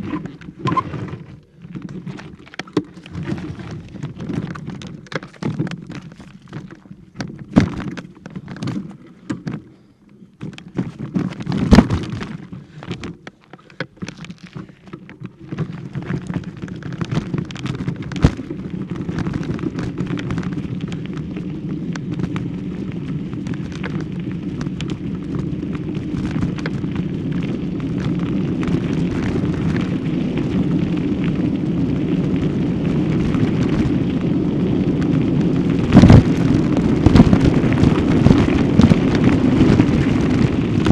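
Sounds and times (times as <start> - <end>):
microphone handling knocks and bumps: 2.0 - 9.7, 10.4 - 13.2.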